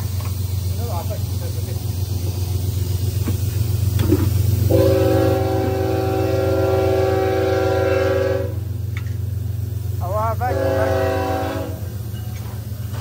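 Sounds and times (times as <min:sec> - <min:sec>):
horn sounding sustained chord: 0:04.7 - 0:08.6, 0:10.5 - 0:11.8.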